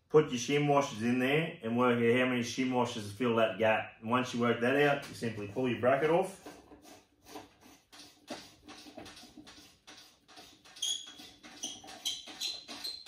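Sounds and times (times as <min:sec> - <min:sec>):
short high squeaks: 0:10.4 - 0:13.0.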